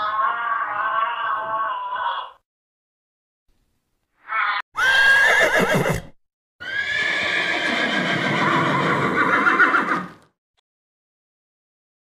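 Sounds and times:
horse whinnying: 4.8s - 10.2s.

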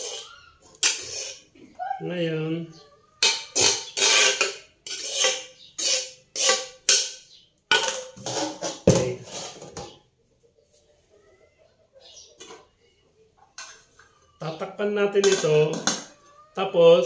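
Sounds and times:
metal spoon scraping a wok: 0.0s - 1.5s, 3.2s - 9.9s.

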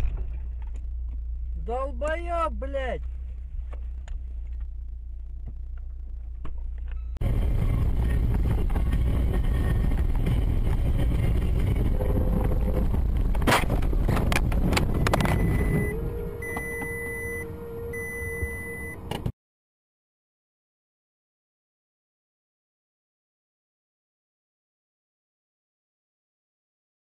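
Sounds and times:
vehicle engine and road noise: 0.0s - 19.3s
steady tone: 15.0s - 19.1s
short high beeps: 15.3s - 19.0s.

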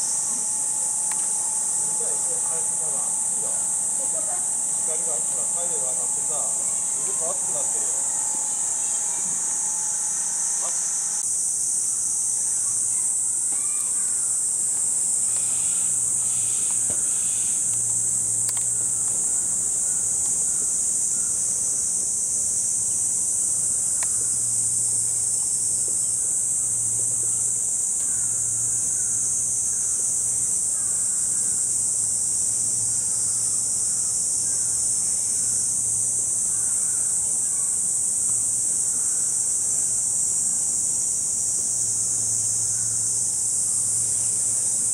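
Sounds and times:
faint low hum: 0.0s - 11.2s
cicadas chorusing: 0.0s - 44.9s.

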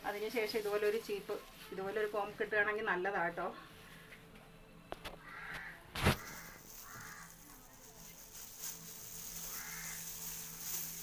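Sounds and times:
crow cawing: 5.2s - 7.4s, 9.3s - 10.5s.

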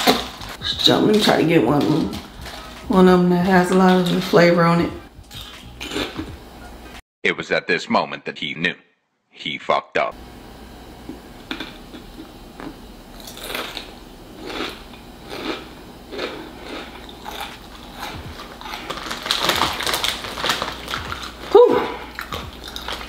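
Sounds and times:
potato crisps crunching: 0.0s - 4.4s, 5.3s - 6.3s, 11.5s - 23.0s.

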